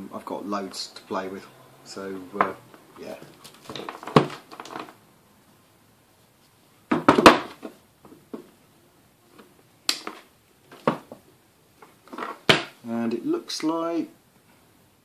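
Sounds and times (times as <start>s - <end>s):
handling knocks on workbench: 3.6s - 4.8s, 6.9s - 8.5s.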